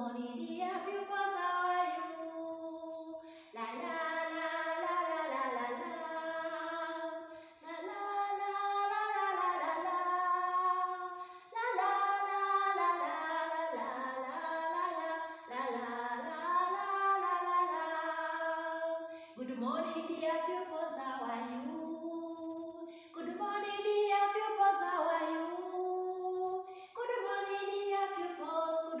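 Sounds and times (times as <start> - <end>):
woman singing unaccompanied: 0.0 - 29.0.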